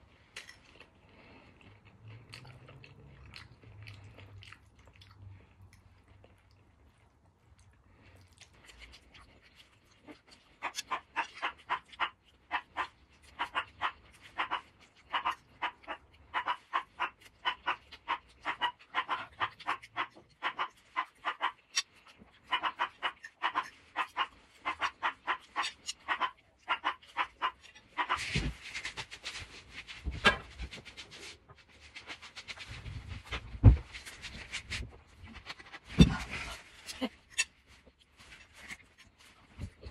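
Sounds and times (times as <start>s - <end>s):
rustling: 28.0s - 39.9s.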